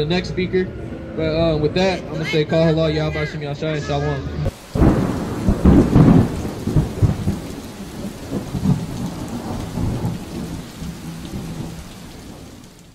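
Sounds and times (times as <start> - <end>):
steady rain: 4.5 - 12.9
thunder rumbling: 4.5 - 12.9.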